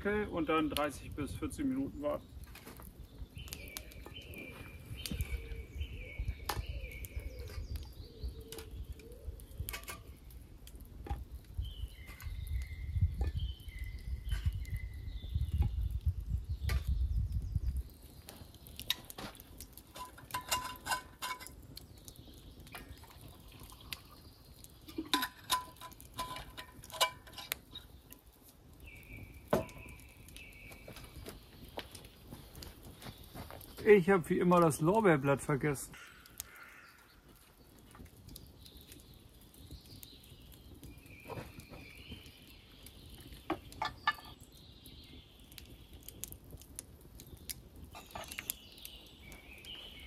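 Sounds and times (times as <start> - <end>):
birds whistling: 3.1 - 10.4, 11.6 - 18.9, 28.8 - 32.1, 47.3 - 50.0.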